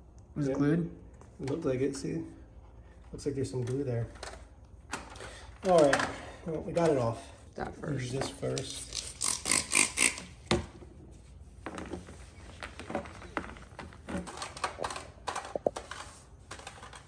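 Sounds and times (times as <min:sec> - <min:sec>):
spray bottle squirting: 0:08.4 - 0:10.4.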